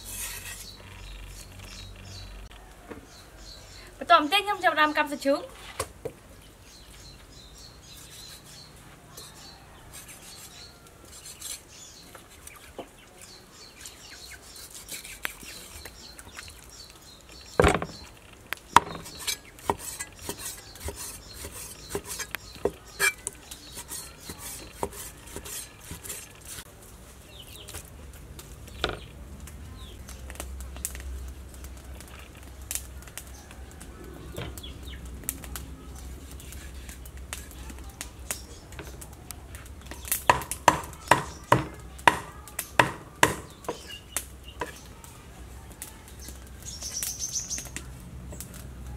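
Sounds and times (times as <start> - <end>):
cleaver chopping on wooden board: 18.8 - 23.2, 23.8 - 26.2, 40.2 - 43.9.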